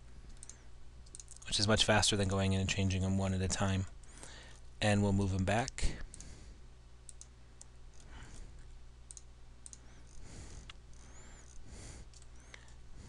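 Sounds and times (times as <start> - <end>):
low steady hum: 0.0 - 13.0
computer mouse clicks: 0.3 - 1.5, 7.1 - 8.5, 9.1 - 12.8.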